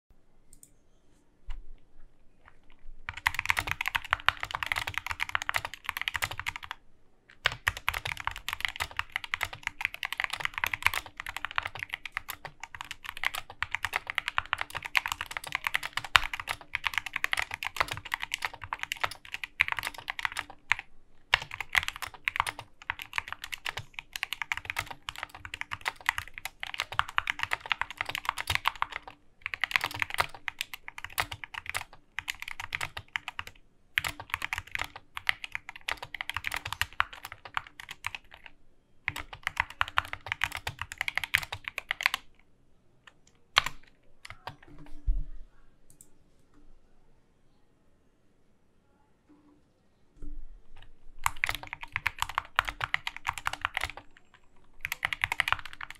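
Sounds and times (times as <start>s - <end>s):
fast mechanical keyboard typing: 3.0s - 6.8s, 7.4s - 38.5s, 39.1s - 42.3s, 43.6s - 44.7s, 50.8s - 55.9s.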